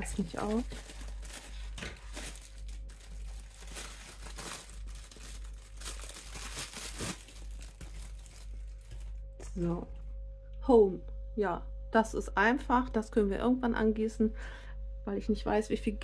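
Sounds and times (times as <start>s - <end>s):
plastic bag crinkling: 0.0s - 9.4s.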